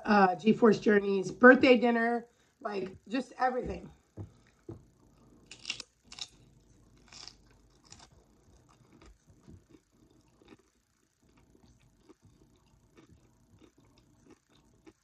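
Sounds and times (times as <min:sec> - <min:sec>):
person chewing: 0:04.3 - 0:15.0
chip crunching: 0:05.1 - 0:15.0.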